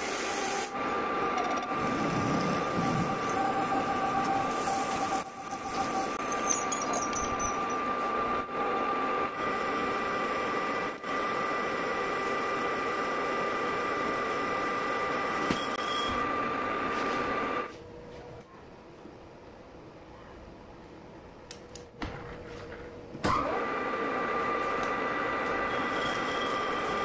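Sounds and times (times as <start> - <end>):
metal lathe cutting whine: 0.0 - 17.6, 23.6 - 27.0
low hum of spindle: 0.4 - 15.7.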